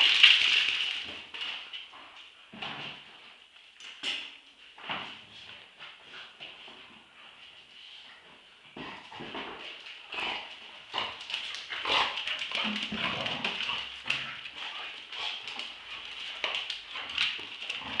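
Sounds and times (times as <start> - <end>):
dogs growling: 10.1 - 18.0.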